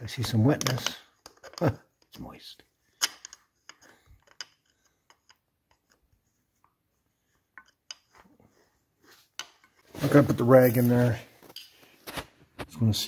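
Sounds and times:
screwdriver clicking and scraping metal: 3.0 - 6.8, 7.5 - 8.3.

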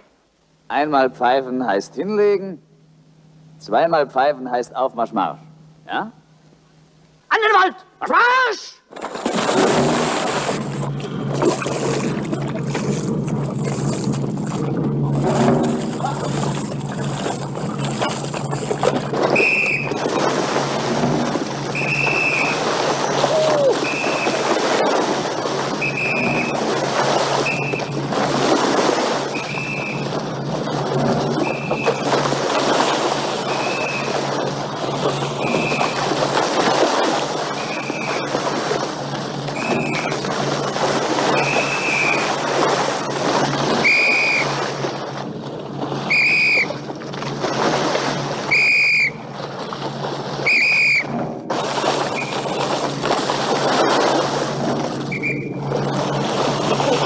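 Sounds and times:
steady rushing noise: 9.3 - 57.0
short high whistle blasts: 19.4 - 20.0, 21.8 - 22.6, 25.8 - 26.5, 41.4 - 42.3, 43.8 - 44.5, 46.1 - 46.8, 48.5 - 49.2, 50.4 - 51.1, 55.1 - 55.6.

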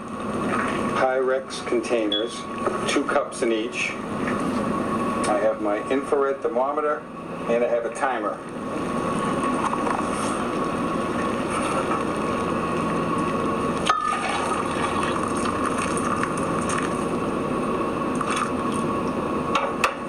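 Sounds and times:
hot water pouring into glass: 13.9 - 16.7.

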